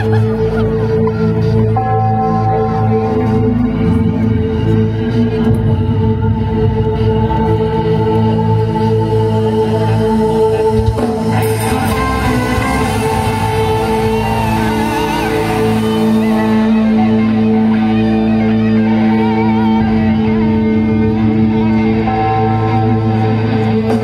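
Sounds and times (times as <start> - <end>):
live music sustained chords: 0.0 - 24.0
wavering melody line: 11.4 - 20.4.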